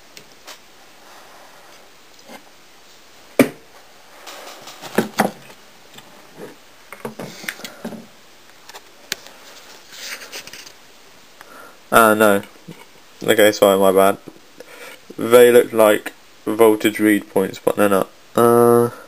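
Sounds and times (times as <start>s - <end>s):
rustling: 0.0s - 11.5s.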